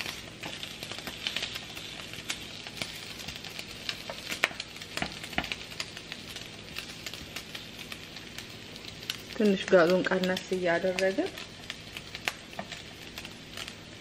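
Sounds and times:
bacon sizzling in a pan: 0.0 - 14.0.

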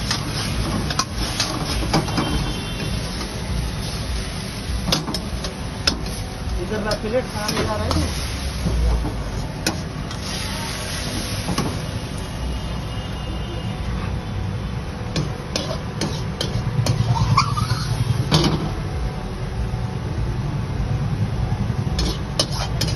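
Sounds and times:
passing traffic rumble: 0.0 - 22.9.

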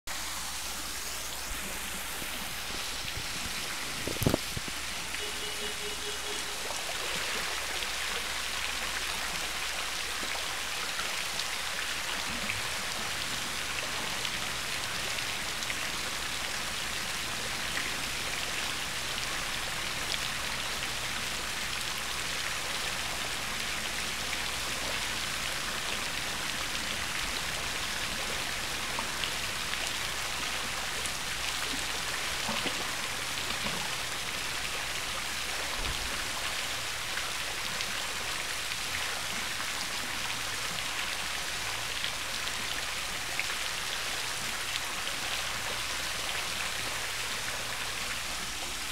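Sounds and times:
pool water splashing and lapping: 0.1 - 48.9.

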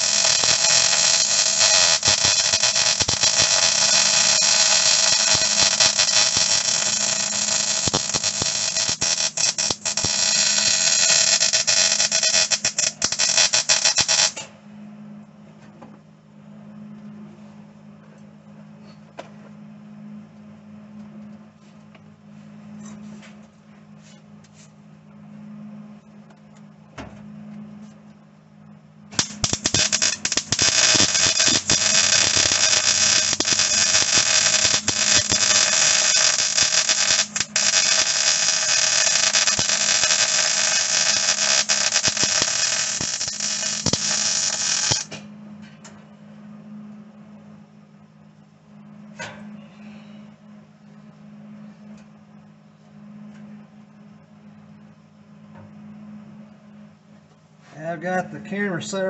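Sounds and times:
welder arc crackling: 0.0 - 14.5, 29.1 - 45.2
low steady hum: 0.0 - 59.0.

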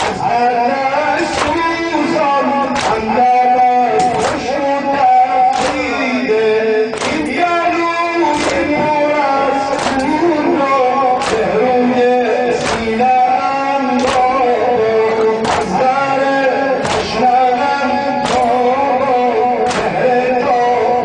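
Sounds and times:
man singing a lament: 0.0 - 21.0
chest-beat slaps: 2.6 - 3.2, 4.0 - 4.5, 5.5 - 6.1, 6.9 - 7.4, 8.4 - 8.9, 9.7 - 10.3, 11.1 - 11.7, 12.5 - 13.2, 14.0 - 14.5, 15.2 - 15.9, 16.8 - 17.3, 18.2 - 18.7, 19.6 - 20.0.

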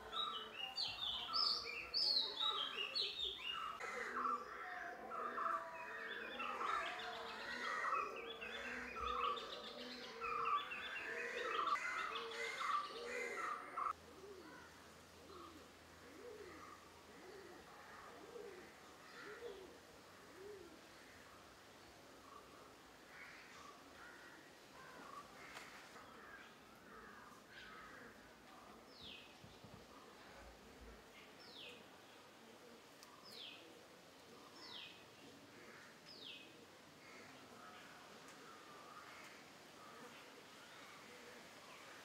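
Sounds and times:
birds chirping and trilling: 0.0 - 21.4.

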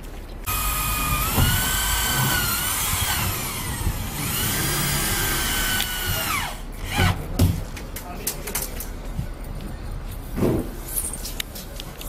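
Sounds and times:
electric drill whining: 0.5 - 7.0.

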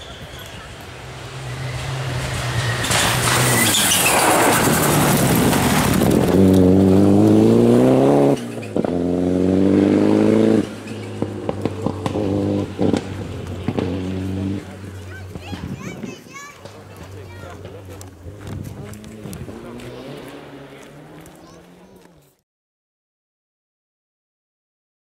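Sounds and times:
rally car engine accelerating: 0.0 - 22.4
exhaust cracks: 2.2 - 9.1, 9.7 - 22.3.

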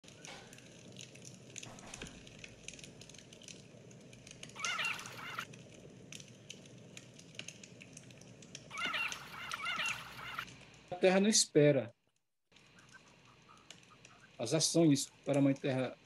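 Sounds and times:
campfire crackling: 0.0 - 11.4, 12.5 - 16.0
bird calling: 4.6 - 5.5, 8.7 - 10.5, 12.6 - 14.4.

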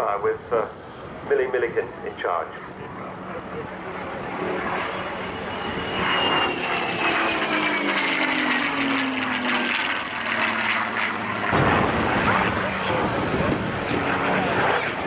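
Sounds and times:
propeller plane flying past: 0.0 - 15.0.

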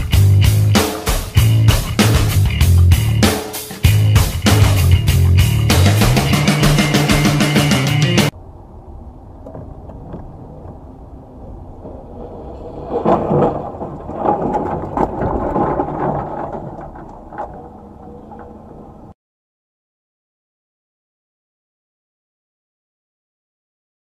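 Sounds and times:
car road rumble: 8.3 - 19.2
loud thumps and knocks: 13.0 - 17.7.

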